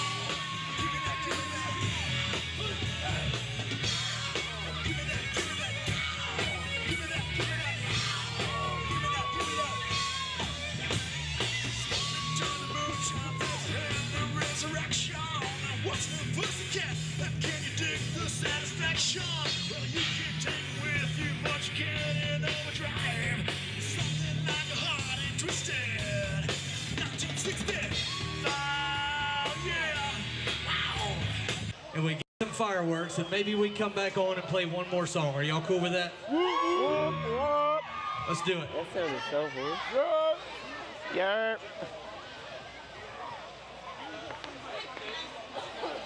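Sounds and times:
drum beat: 0:00.0 - 0:31.7
live rock band playing: 0:00.0 - 0:31.8.

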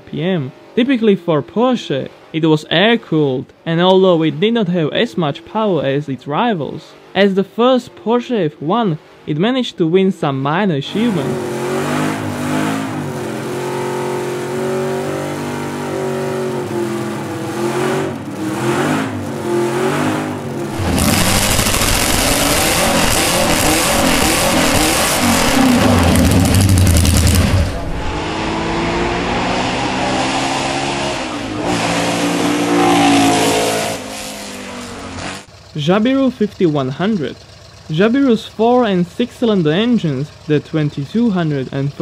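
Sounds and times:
race car engine revving: 0:10.8 - 0:42.0.

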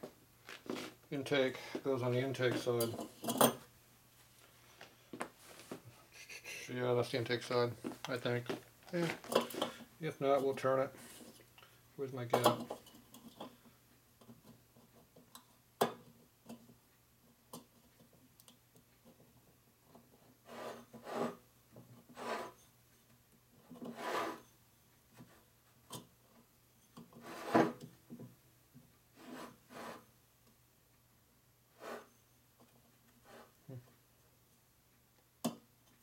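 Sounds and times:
metal-on-metal scrapes: 0:20.5 - 0:21.4, 0:22.1 - 0:22.7, 0:23.8 - 0:24.5, 0:27.2 - 0:27.8, 0:31.8 - 0:32.3.

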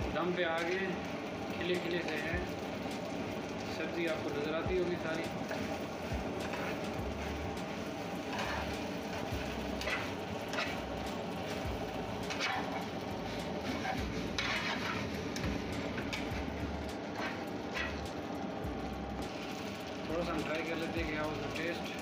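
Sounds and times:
steady background noise: 0:00.0 - 0:22.0
metal utensil scraping a pan: 0:06.4 - 0:07.3, 0:08.2 - 0:11.6, 0:12.2 - 0:15.2, 0:17.1 - 0:18.0.

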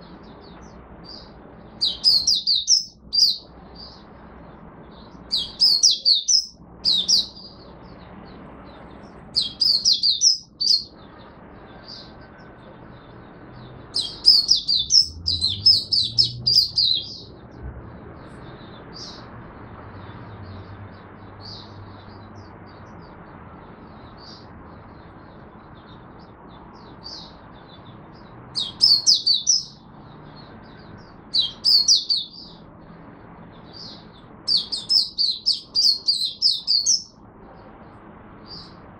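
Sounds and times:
bird twittering: 0:00.0 - 0:04.1, 0:05.0 - 0:08.0, 0:09.3 - 0:11.0, 0:13.9 - 0:17.4, 0:28.6 - 0:29.9, 0:30.6 - 0:32.6, 0:33.7 - 0:37.2.

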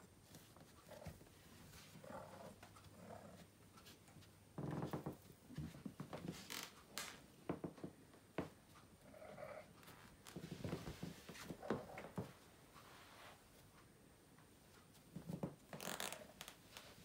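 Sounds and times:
cat rustling and scratching on rug: 0:09.8 - 0:13.8.

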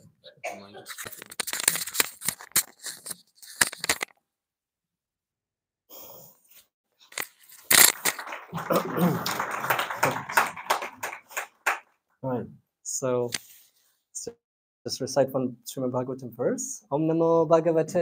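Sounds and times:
bumps and rubbing: 0:00.8 - 0:04.1.

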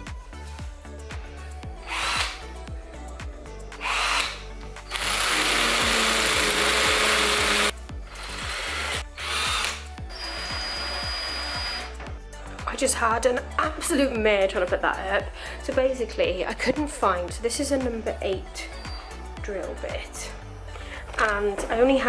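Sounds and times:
cordless drill drilling into wall: 0:01.8 - 0:02.5, 0:03.8 - 0:12.0.

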